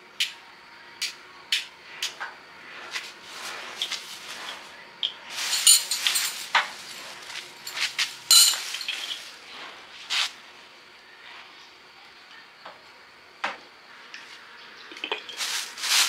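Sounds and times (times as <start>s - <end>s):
scraping rattling clatter: 5.3s - 9.3s.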